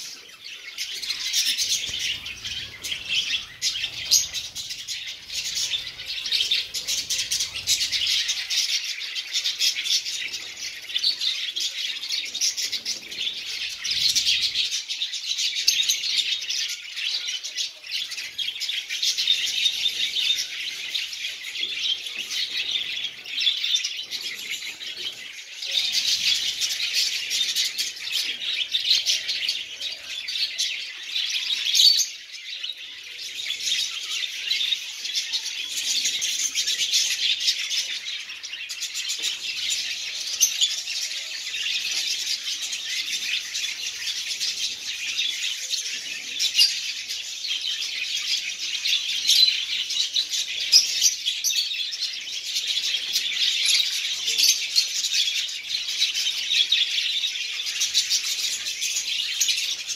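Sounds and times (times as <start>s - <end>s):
lovebirds chirping: 0.0s - 59.9s.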